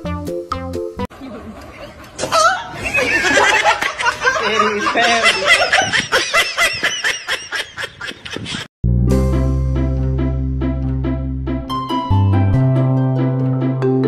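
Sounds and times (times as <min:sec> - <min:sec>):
plucked string music: 0:08.9 - 0:14.0.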